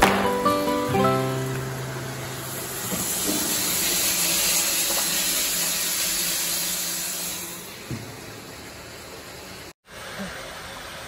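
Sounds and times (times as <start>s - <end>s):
water pouring into metal tank: 0.0s - 7.8s.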